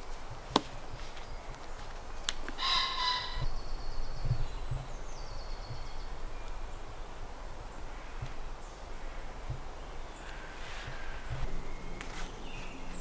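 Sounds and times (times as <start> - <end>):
harsh bird call: 2.6 - 3.6
songbird trilling: 2.6 - 6.9.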